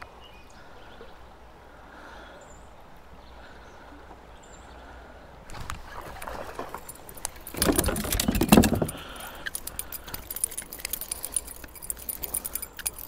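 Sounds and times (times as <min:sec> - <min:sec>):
metallic jingling and clicking: 0:06.6 - 0:13.0.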